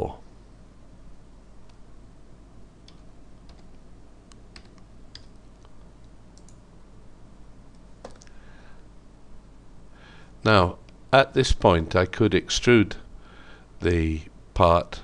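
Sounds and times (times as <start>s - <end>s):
faint low hum: 0.0s - 15.0s
keyboard keys tapping: 2.8s - 5.6s.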